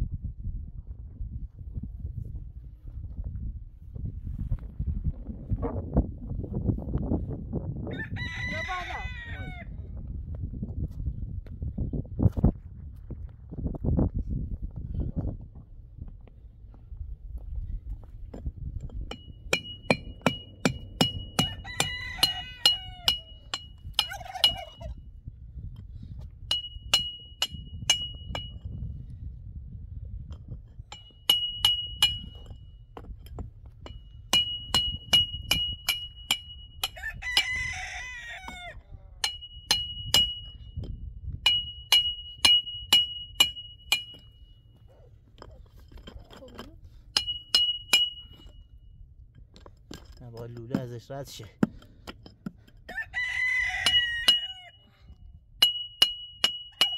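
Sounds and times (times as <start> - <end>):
rooster crowing: 7.9 - 9.7, 21.2 - 24.9, 36.9 - 39.2, 52.9 - 54.9.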